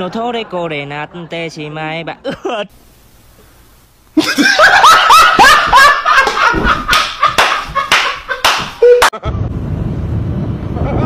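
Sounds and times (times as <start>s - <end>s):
hysterical laughter: 4.2s - 9.4s
hand slaps: 6.2s - 9.1s.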